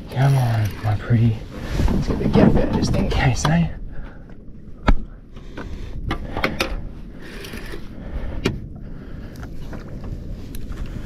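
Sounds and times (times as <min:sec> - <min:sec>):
hiss of water and wind: 0:00.0 - 0:11.0
fishing gear clicks and knocks: 0:04.3 - 0:08.6.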